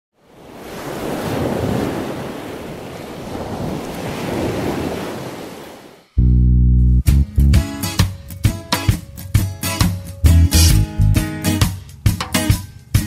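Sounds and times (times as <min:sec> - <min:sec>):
sea waves breaking on beach: 0:00.2 - 0:06.2
music: 0:06.2 - 0:13.0.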